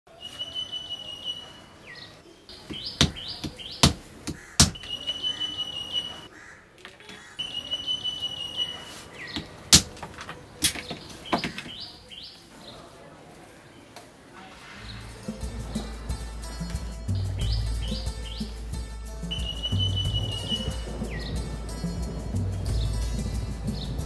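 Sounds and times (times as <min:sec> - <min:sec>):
bird singing: 0:00.1 - 0:12.9, 0:14.8 - 0:24.0
hammer knocking plaster: 0:02.7 - 0:04.8.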